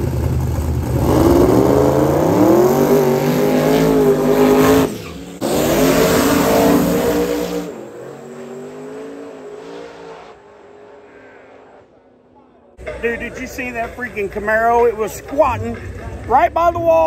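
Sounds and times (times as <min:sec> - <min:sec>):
distant engine: 0:00.0 - 0:16.3
engine revving hard: 0:00.9 - 0:11.9
tire squeal: 0:03.1 - 0:12.1.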